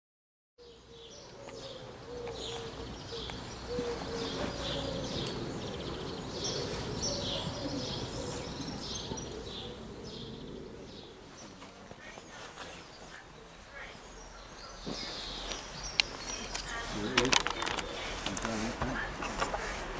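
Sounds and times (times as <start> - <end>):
pigeon cooing: 0.6 - 11.2
birds chirping and singing: 0.6 - 19.9.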